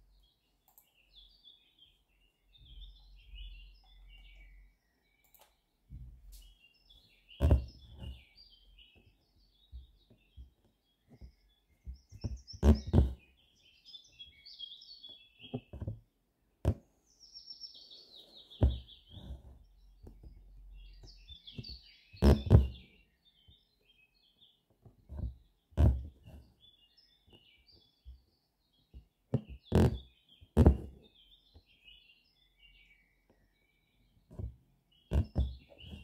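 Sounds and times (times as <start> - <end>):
small birds chirping: 0.0 - 36.0
needle tapping through fabric: 7.4 - 8.2, 9.7 - 13.2, 15.4 - 16.0, 16.6 - 16.8, 18.6 - 20.4, 21.6 - 22.8, 24.8 - 26.4, 28.9 - 31.0, 34.3 - 36.0.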